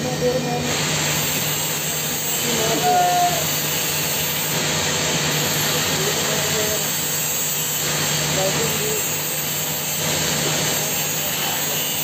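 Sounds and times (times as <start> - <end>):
loud steady hiss: 0.0 - 12.0.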